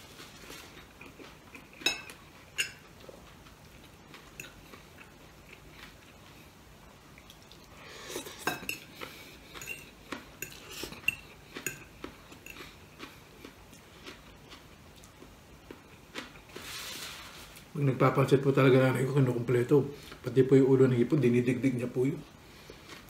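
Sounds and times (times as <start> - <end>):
fork clinking and scraping on plate: 1.6 - 2.9, 8.0 - 12.7.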